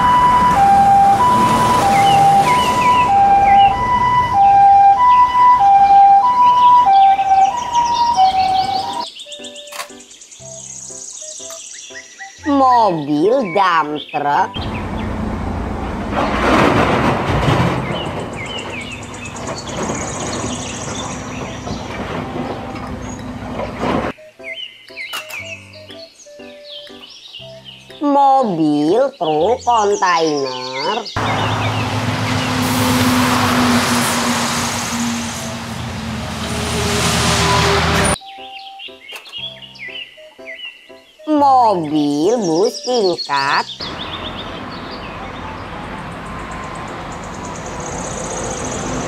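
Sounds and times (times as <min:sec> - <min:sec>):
traffic noise: 0:00.0 - 0:09.1, 0:14.5 - 0:24.2, 0:30.3 - 0:38.2, 0:43.0 - 0:49.0
two-tone ambulance siren: 0:00.0 - 0:09.1, 0:20.6 - 0:23.4, 0:31.2 - 0:38.2
diesel engine running: 0:14.6 - 0:24.1, 0:31.2 - 0:38.2, 0:43.8 - 0:49.0.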